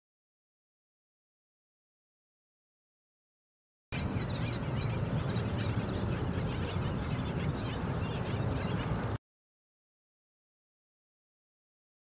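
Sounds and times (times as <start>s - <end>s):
colony of birds calling: 4.0s - 9.2s.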